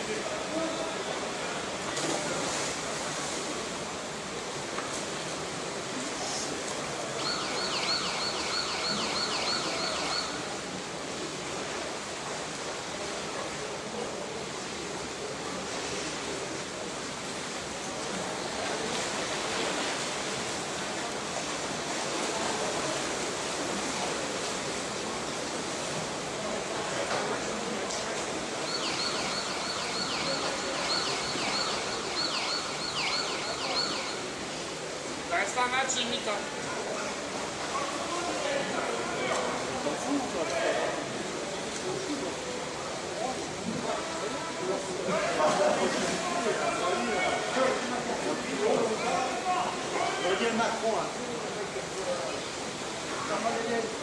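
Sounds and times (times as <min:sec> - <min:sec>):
pool water splashing: 0:00.0 - 0:54.0
electronic siren wailing: 0:07.2 - 0:10.4, 0:28.7 - 0:34.4.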